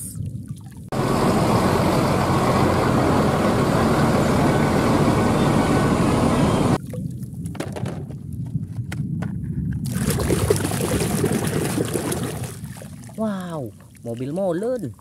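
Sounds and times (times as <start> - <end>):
bus engine and road din: 0.9 - 6.8.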